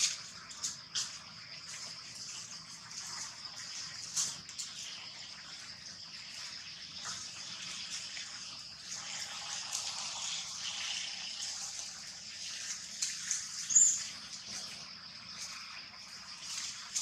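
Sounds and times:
small rustles and clicks: 0.0s - 4.8s
outdoor ambience hiss: 0.0s - 17.0s.

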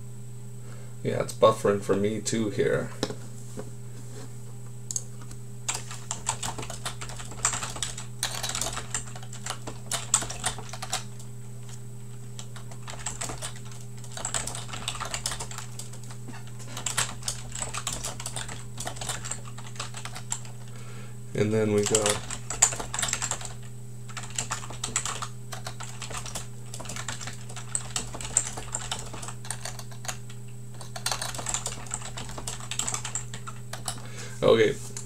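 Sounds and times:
low electrical hum: 0.0s - 35.0s
typing on computer keyboard: 5.7s - 11.3s, 12.4s - 20.6s, 21.8s - 34.0s.

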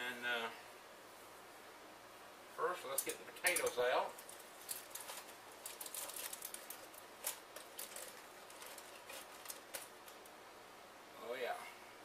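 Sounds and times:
metal tongs clicking and scraping: 2.9s - 9.9s
aluminium foil crinkling: 2.9s - 10.3s.

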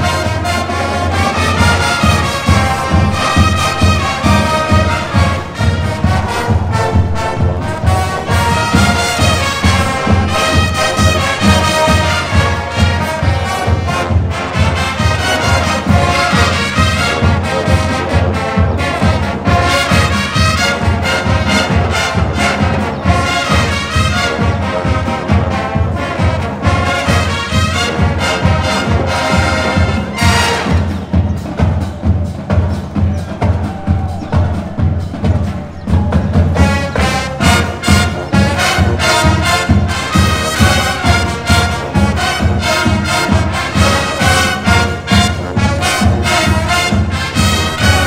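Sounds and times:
drumline beat: 0.0s - 48.0s
marching band brass: 0.0s - 48.0s.

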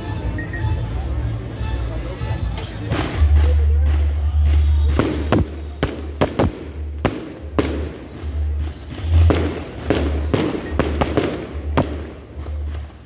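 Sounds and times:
fireworks bangs and cracks: 2.9s - 13.0s.

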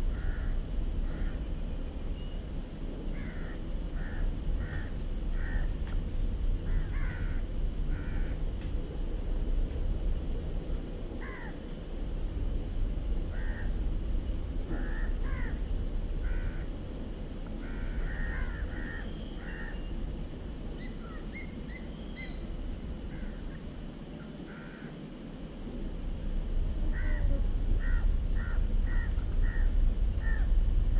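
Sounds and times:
low background rumble: 0.0s - 30.9s
crows cawing: 0.1s - 1.4s, 3.2s - 5.7s, 6.7s - 8.4s, 11.2s - 11.6s, 13.3s - 13.8s, 14.7s - 15.6s, 16.2s - 16.7s, 17.6s - 19.8s, 23.1s - 23.6s, 24.3s - 25.0s, 26.9s - 30.5s.

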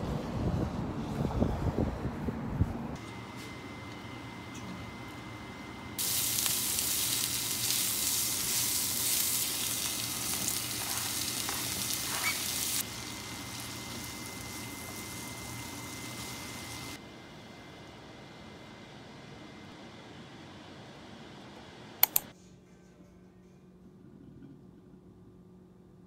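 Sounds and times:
meat sizzling in a frying pan: 6.0s - 17.0s.

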